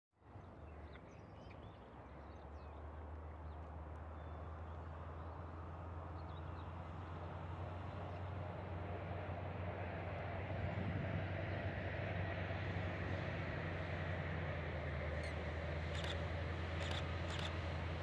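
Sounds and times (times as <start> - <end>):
faint bird chirps: 16.8 - 17.5.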